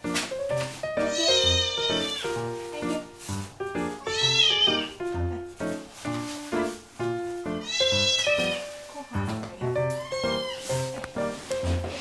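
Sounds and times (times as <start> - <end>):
music with held notes: 0.0 - 12.0
kitten mewing: 1.0 - 2.2.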